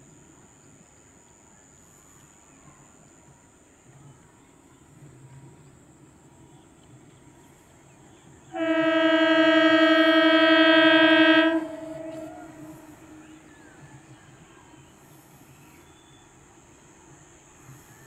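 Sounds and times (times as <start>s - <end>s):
train horn blast: 8.5s - 13.8s.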